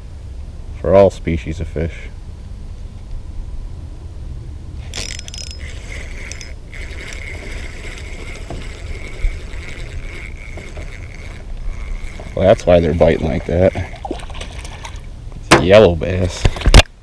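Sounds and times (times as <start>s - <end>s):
low steady rumble: 0.0s - 17.0s
reel clicks rattling: 4.8s - 14.0s
fishing reel whirring: 4.8s - 15.0s.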